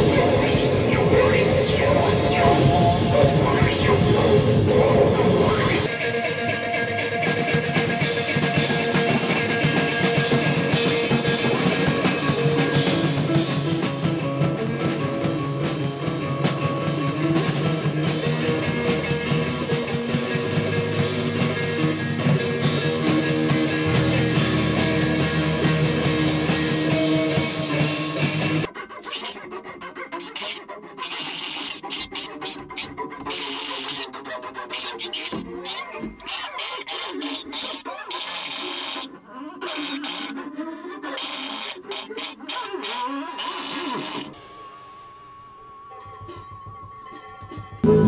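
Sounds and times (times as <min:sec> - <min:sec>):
rock music with drums and guitar: 0:00.0 - 0:28.7, 0:41.2 - 0:48.0.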